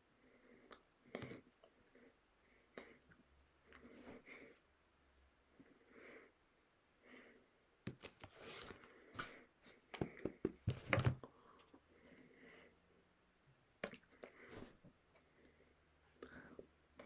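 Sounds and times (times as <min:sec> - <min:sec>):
book being handled: 0:07.9 - 0:09.4.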